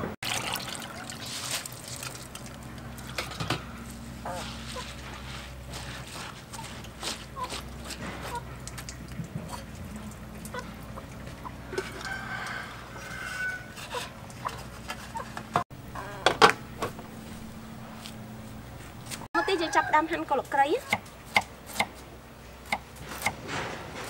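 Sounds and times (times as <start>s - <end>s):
rustling rice and cloth: 4.3s - 7.4s
chickens clucking: 10.4s - 13.2s.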